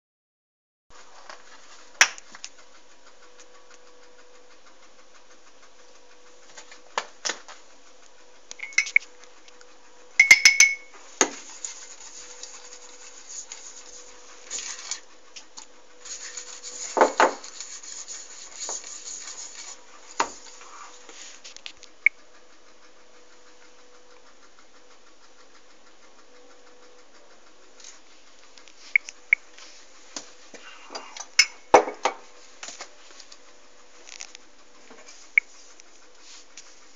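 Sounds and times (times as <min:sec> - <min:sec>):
faint steady hum: 0:01.0 - 0:36.9
sharp ringing clink: 0:08.6 - 0:09.0, 0:10.2 - 0:10.9
pans and utensils clinking: 0:10.2 - 0:10.9
scraping and rubbing: 0:11.1 - 0:15.0, 0:16.0 - 0:21.6.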